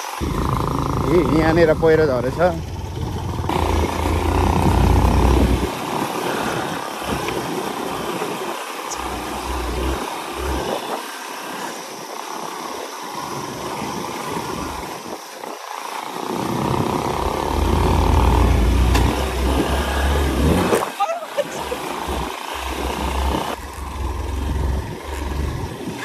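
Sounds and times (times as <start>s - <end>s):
motorcycle engine running: 0.0s - 15.0s, 15.8s - 26.0s
low rumble: 0.2s - 5.7s, 22.2s - 25.8s.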